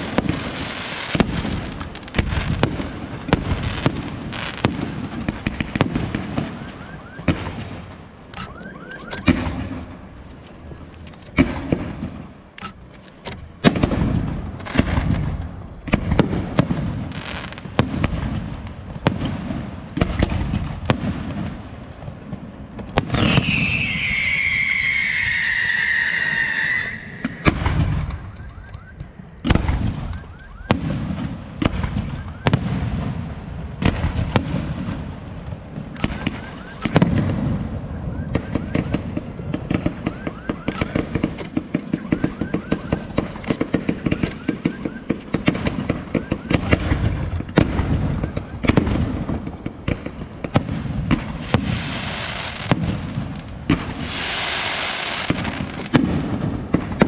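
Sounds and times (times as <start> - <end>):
rapid firework crackle: 0.0 - 7.9, 38.3 - 57.0
fireworks bangs: 0.0 - 10.2, 11.3 - 12.6, 13.4 - 57.0
falling firework whistle: 6.3 - 7.5, 23.1 - 29.1, 31.8 - 32.7, 36.0 - 37.2, 37.8 - 39.1, 39.8 - 41.2, 41.9 - 45.3, 47.9 - 48.8.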